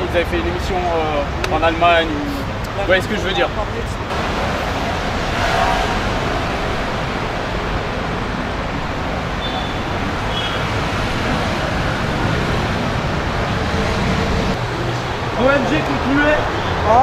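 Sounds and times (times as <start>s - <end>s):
road traffic noise: 0.0s - 17.0s.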